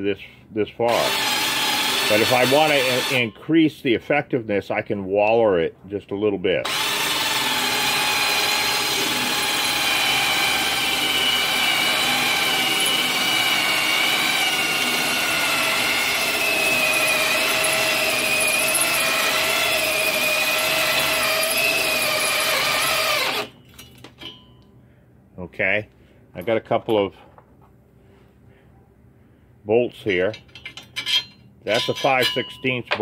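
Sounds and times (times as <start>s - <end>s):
electric drill grinding steel: 0.9s - 3.3s, 6.6s - 23.6s.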